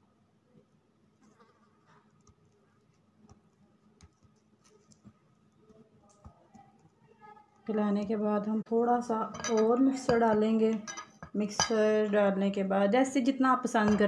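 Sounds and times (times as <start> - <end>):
low steady room hum: 0.0 - 14.0.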